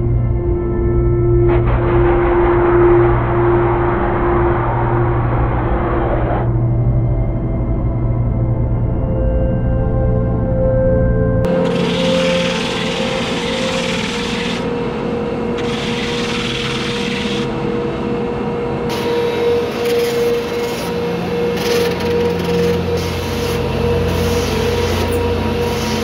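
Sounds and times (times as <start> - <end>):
hand tool rasping on wood: 11.5 - 14.7, 15.6 - 17.5.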